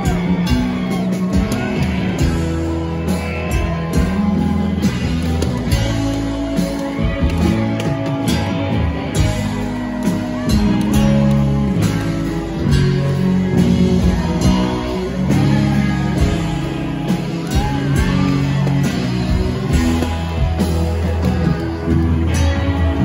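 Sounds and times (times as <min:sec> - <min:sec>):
bass guitar: 0:00.0 - 0:23.0
electric guitars: 0:00.0 - 0:23.0
steady drum beat: 0:00.0 - 0:23.0.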